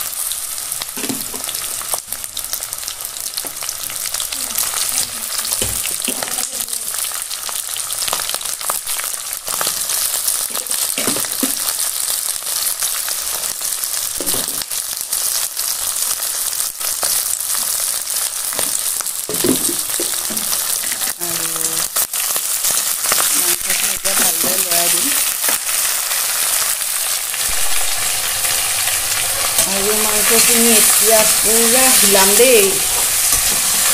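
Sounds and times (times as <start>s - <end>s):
meat sizzling in hot oil: 0.0s - 33.9s.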